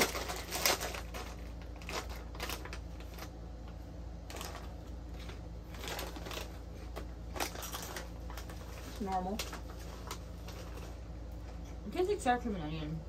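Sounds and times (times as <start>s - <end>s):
chips crunching: 0.0s - 3.4s, 4.2s - 10.9s
chip bag crinkling: 0.0s - 11.1s.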